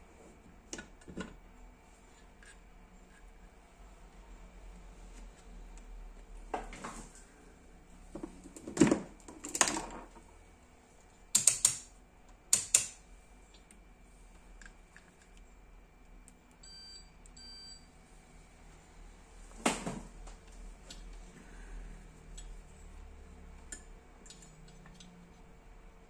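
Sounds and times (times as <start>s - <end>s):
multimeter beeps: 16.6s - 17.9s.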